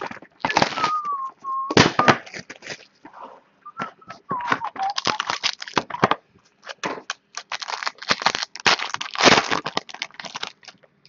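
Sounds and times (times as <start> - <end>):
foil pack crinkling and tearing: 0.0 - 1.1, 1.8 - 3.0, 4.6 - 10.9.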